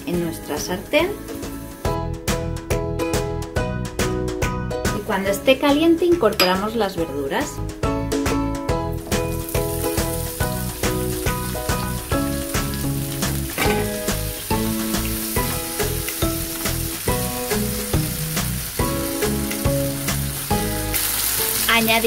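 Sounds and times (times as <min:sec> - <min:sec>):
peppers sizzling in hot oil: 0:00.0 - 0:02.4, 0:08.7 - 0:22.0
background music: 0:00.0 - 0:22.0.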